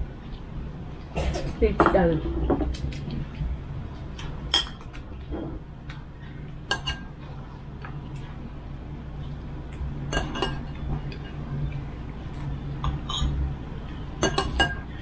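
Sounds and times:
low steady hum: 0:00.0 - 0:15.0
spoons clinking against bowls: 0:04.5 - 0:05.0, 0:06.7 - 0:07.2, 0:10.1 - 0:11.5, 0:12.4 - 0:15.0.

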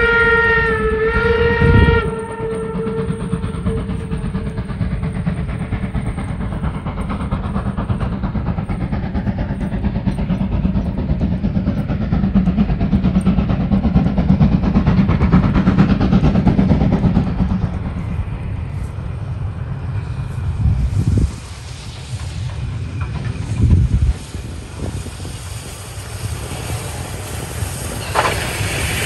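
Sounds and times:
steam locomotive passing: 0:00.0 - 0:29.0.

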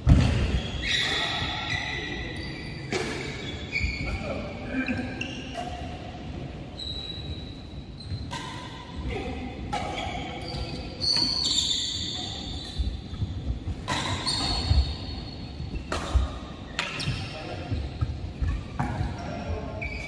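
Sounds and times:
shoes squeaking on court floor: 0:00.1 - 0:20.0
racket hitting shuttlecock: 0:08.2 - 0:09.0, 0:13.7 - 0:14.9, 0:15.8 - 0:17.3.

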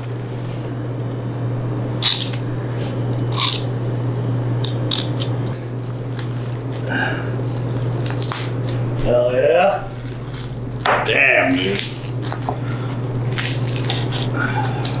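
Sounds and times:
steady low hum: 0:00.0 - 0:15.0
meat tearing and scraping: 0:04.8 - 0:08.8, 0:09.8 - 0:10.8, 0:11.5 - 0:15.0.

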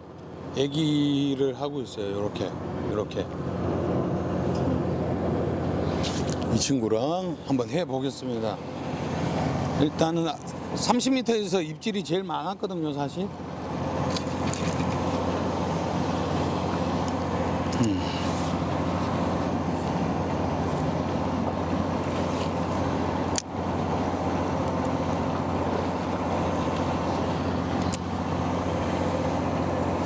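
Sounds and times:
boat machinery droning: 0:00.0 - 0:30.0.

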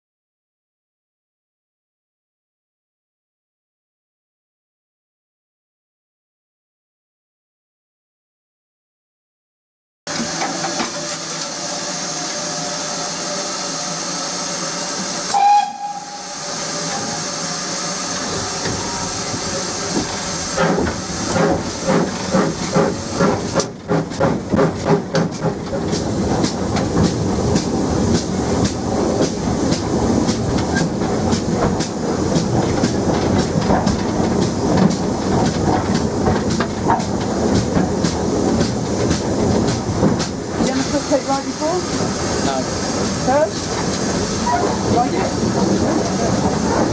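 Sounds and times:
steam hissing: 0:10.1 - 0:46.9
steam locomotive chuffing: 0:10.1 - 0:46.9
steam whistle toot: 0:15.3 - 0:17.3.

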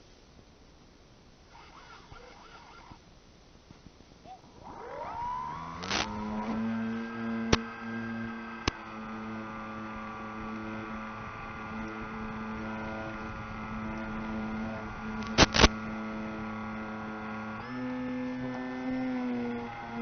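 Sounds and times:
electric motor drone: 0:01.5 - 0:03.0, 0:04.4 - 0:20.0
sharp clicks: 0:05.8 - 0:06.2, 0:15.2 - 0:15.8.

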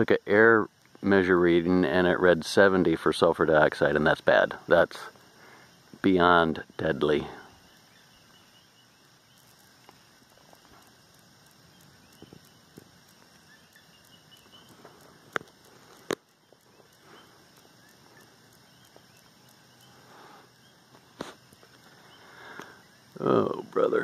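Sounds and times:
faint background hiss: 0:00.0 - 0:24.0
light ticks: 0:09.0 - 0:23.8
sharp clicks: 0:09.4 - 0:20.1.

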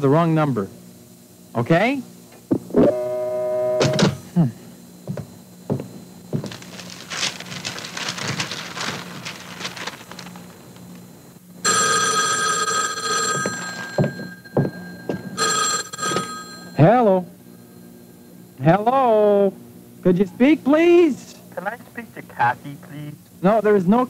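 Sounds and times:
telephone ringing: 0:11.6 - 0:17.2.

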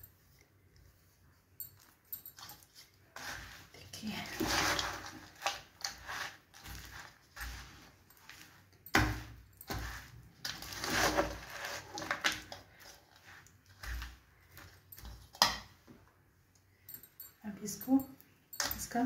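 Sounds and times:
metal spoon scraping a bowl: 0:01.8 - 0:15.6.

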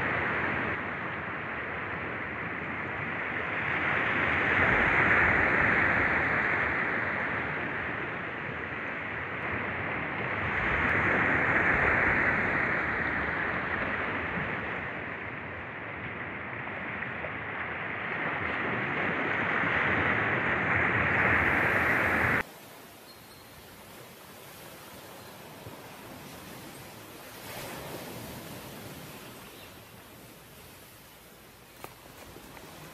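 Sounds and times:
small waves washing onto sand: 0:00.0 - 0:32.9
faint hiss: 0:22.1 - 0:32.9.

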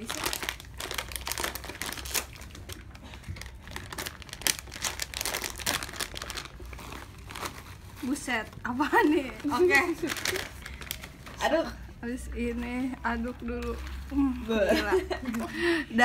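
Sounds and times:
foil lid crinkling: 0:00.0 - 0:08.3.

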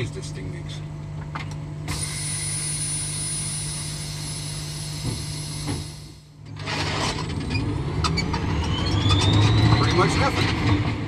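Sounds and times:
cab low hum with high whine: 0:00.0 - 0:07.6.

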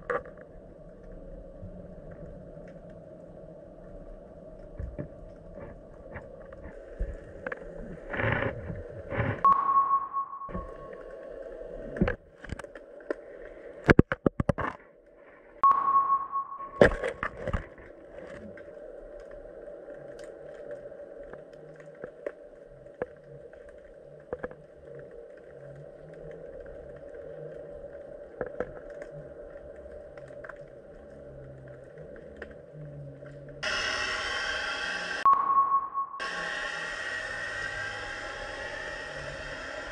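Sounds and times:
loud full sound: 0:35.3 - 0:37.2.

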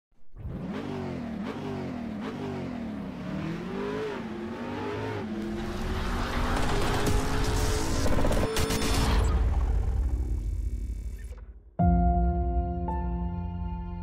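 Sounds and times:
engine revving: 0:00.3 - 0:10.1.

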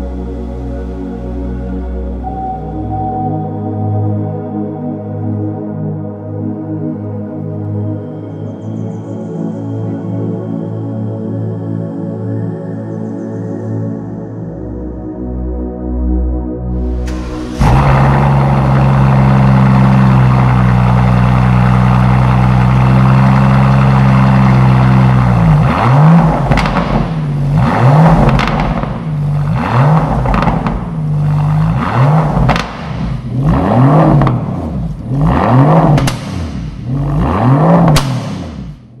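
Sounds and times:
car engine idling and revving: 0:16.8 - 0:39.0
sharp exhaust cracks: 0:16.9 - 0:33.4, 0:34.2 - 0:38.9.

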